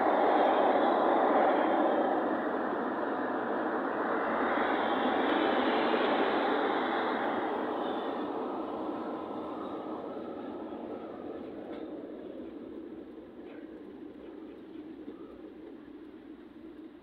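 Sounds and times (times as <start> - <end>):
vehicle road noise: 0.0 - 17.0.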